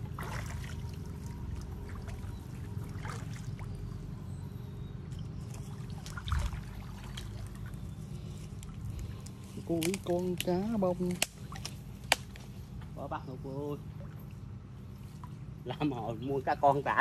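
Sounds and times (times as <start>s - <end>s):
water sloshing and splashing: 0.0s - 12.7s, 13.8s - 15.9s
steady low rumble: 0.0s - 17.0s.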